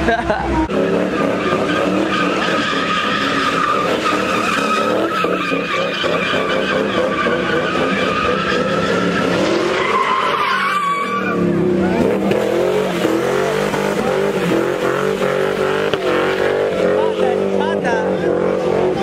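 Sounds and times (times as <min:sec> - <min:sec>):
tires squealing: 0:00.5 - 0:19.0
car engine running: 0:11.4 - 0:19.0.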